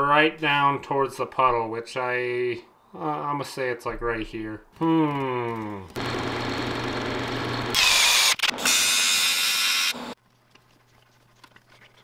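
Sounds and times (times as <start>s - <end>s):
metal lathe machining: 6.0s - 10.1s
motor hum: 6.0s - 10.2s.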